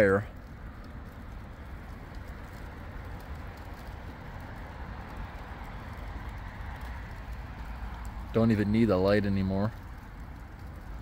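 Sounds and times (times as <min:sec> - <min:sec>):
fire crackles and pops: 0:00.0 - 0:11.0
low rush of flame: 0:00.0 - 0:11.0.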